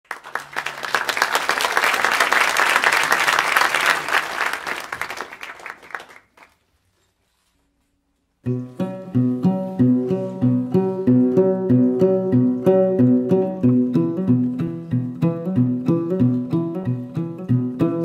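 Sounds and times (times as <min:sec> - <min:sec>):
audience applause: 0:00.0 - 0:06.6
plucked lute playing: 0:08.4 - 0:18.0.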